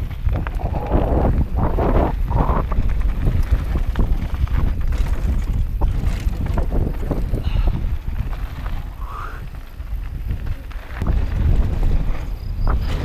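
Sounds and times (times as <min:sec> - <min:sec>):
tyres crunching on gravel: 0:00.0 - 0:13.0
wind buffeting microphone: 0:00.0 - 0:13.0
bike rattling clicks and knocks: 0:02.6 - 0:13.0.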